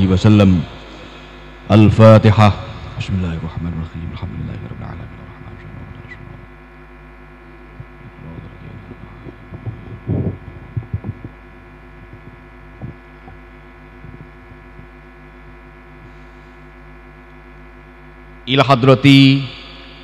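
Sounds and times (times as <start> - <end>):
electrical hum: 0.0 - 20.0
microphone handling bumps: 7.6 - 16.8.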